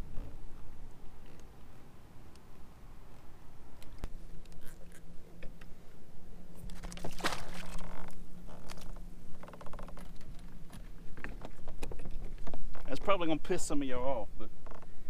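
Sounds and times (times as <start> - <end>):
steady low hum: 0.0 - 15.0
light water splashes: 6.6 - 8.9.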